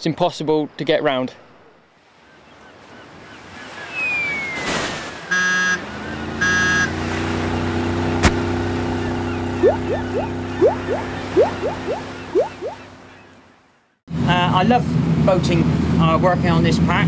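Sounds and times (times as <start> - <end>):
falling whistle: 3.9 - 5.5
boat horn: 5.2 - 9.6
boat engine running: 5.4 - 13.4
quick rising blips: 9.5 - 12.9.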